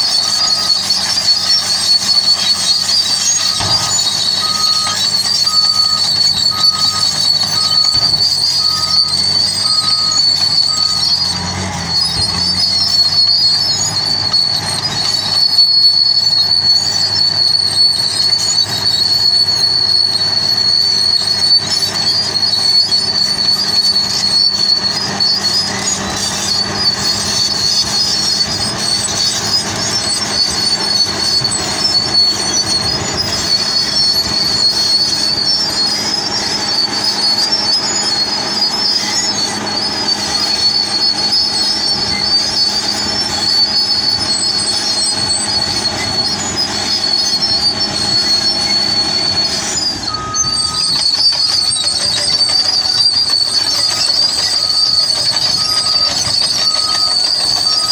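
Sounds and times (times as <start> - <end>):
bulldozer engine running: 0.0 - 57.9
high-pitched squeal: 0.0 - 57.9
beeping backup alarm: 0.2 - 12.3, 47.3 - 57.9.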